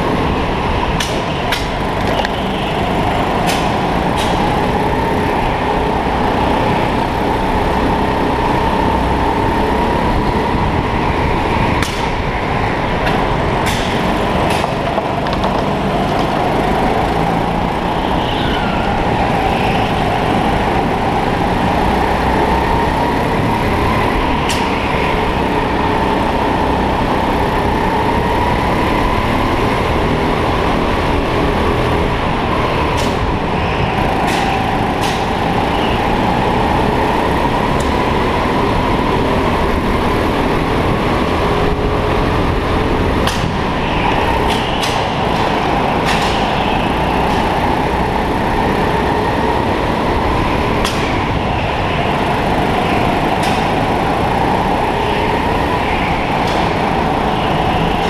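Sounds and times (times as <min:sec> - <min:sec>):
heavy rumble: 0:00.0 - 0:58.0
kart motor whining: 0:00.0 - 0:58.0.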